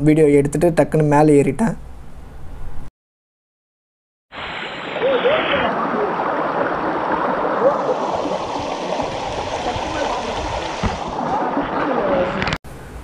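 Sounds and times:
stream water rushing: 4.3 - 12.5.

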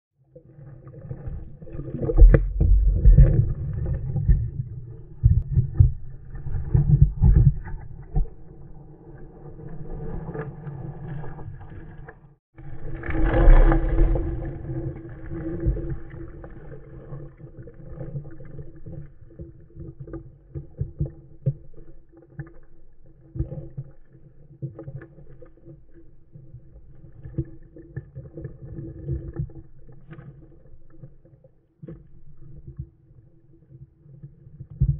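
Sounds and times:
muffled underwater churning: 0.2 - 34.9
stones clicking underwater: 1.6 - 8.5.

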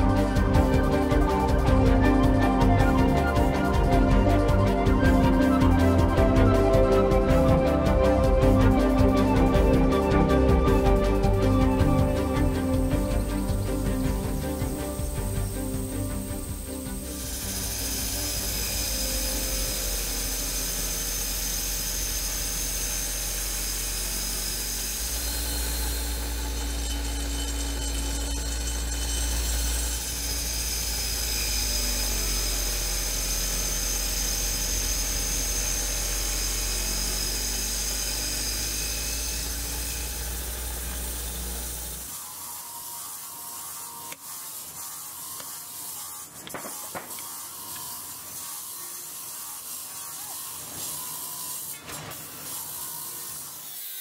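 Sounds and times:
deep hum: 0.0 - 19.9
machine high whine: 0.0 - 54.0.

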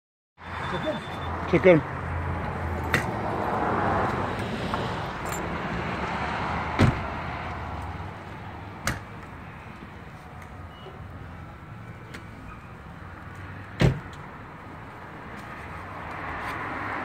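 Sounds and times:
road traffic noise: 0.4 - 17.0
vehicle passing: 0.5 - 8.8, 15.0 - 17.0.

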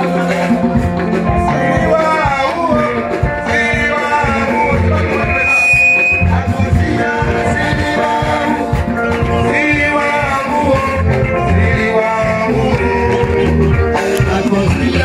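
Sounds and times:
upbeat music with singing: 0.0 - 15.0.

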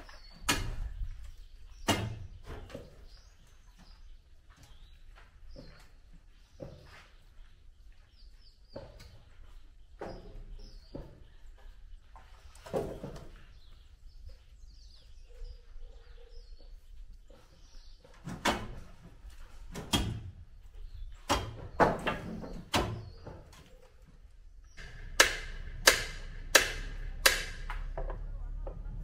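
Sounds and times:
hammer blows on timber: 24.8 - 28.0.

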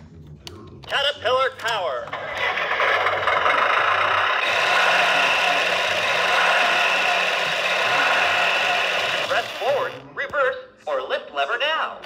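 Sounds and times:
toy speaker engine sound: 2.1 - 10.0.

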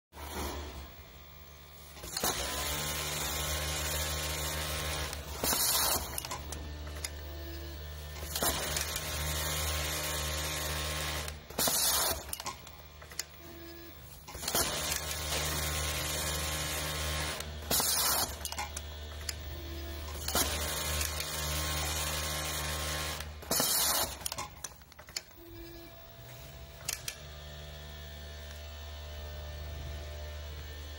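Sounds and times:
sewing machine humming: 1.6 - 30.9.

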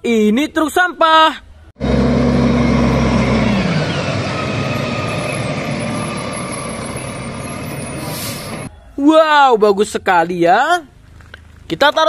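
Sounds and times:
garbage truck engine running: 1.8 - 8.7.

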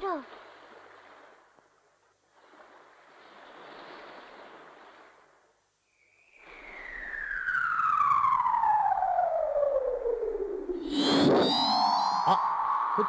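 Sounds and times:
descending whistling tone: 6.0 - 13.0.

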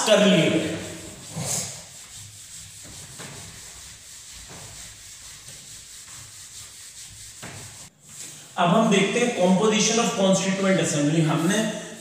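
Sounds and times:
eraser rubbing on whiteboard: 0.4 - 8.2.

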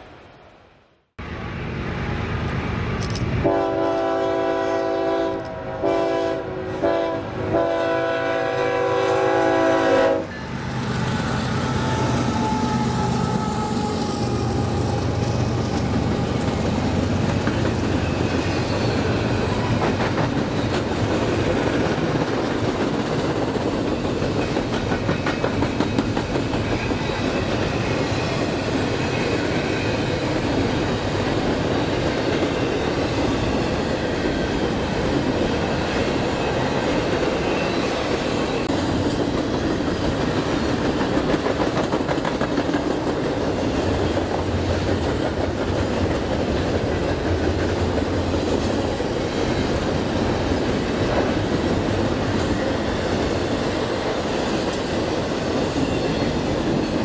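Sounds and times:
train air horn: 3.4 - 10.5, 11.2 - 15.2.

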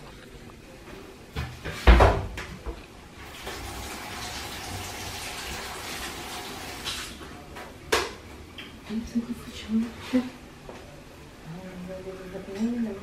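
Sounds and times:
tap running water into sink: 3.3 - 7.1.

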